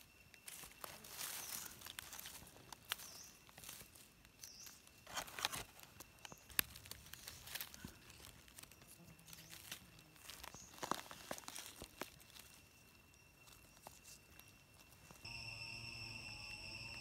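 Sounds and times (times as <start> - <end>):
dry leaves rustling: 0.0 - 15.4
twig snapping: 5.1 - 8.8.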